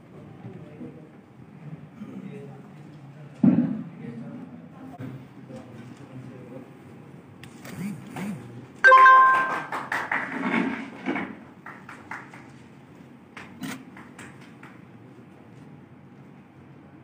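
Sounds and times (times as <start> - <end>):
loud ringing chime: 8.9 - 9.8
people clapping: 8.9 - 15.2.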